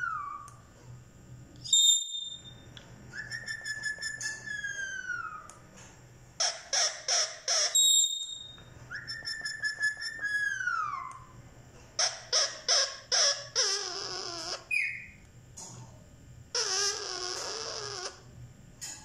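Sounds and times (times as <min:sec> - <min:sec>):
parakeet squawking and whistling: 0:00.0 - 0:00.7, 0:01.6 - 0:05.6, 0:06.4 - 0:11.4, 0:12.0 - 0:15.2, 0:16.5 - 0:18.2.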